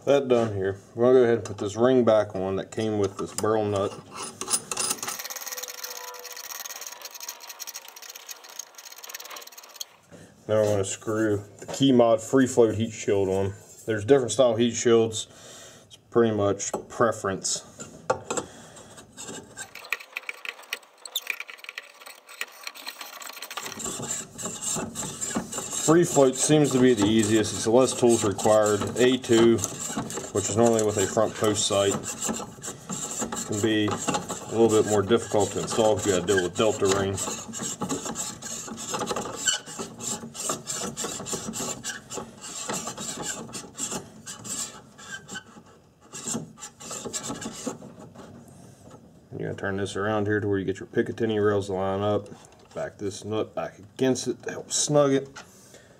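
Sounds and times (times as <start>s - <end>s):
metal threads scraping: 3.2s - 10.0s, 18.3s - 48.4s
metal scrape falling in pitch: 5.2s - 7.4s.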